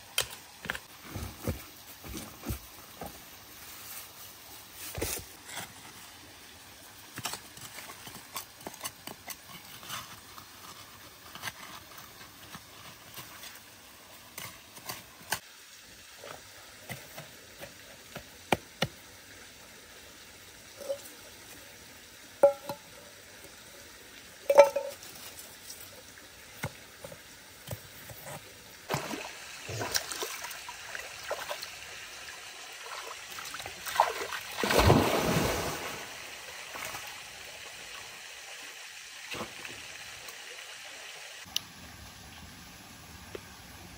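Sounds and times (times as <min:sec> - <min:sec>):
metal bowl clinking on stones: 0:22.4 - 0:22.9, 0:24.5 - 0:25.2.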